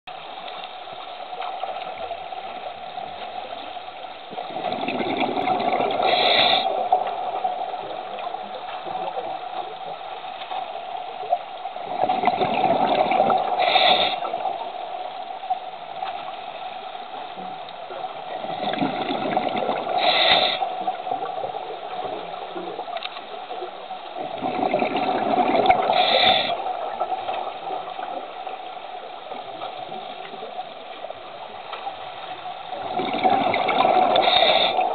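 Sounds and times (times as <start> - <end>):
diver exhaling bubbles underwater: 4.4 - 7.4, 11.9 - 14.5, 18.5 - 20.6, 24.4 - 26.7, 32.8 - 34.9.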